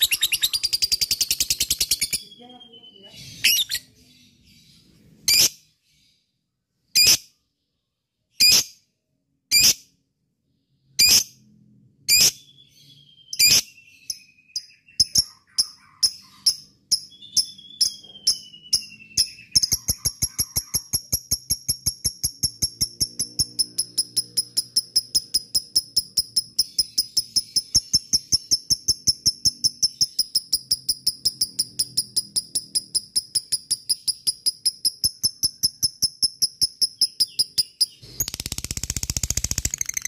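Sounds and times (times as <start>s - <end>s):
bird chattering trill: 0.0s - 3.9s, 13.4s - 38.8s
bird chirping: 0.0s - 40.0s.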